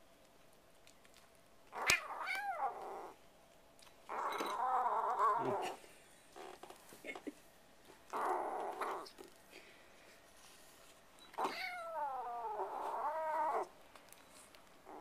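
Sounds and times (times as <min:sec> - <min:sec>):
kitten yowling: 0:01.8 - 0:03.2, 0:11.4 - 0:13.7.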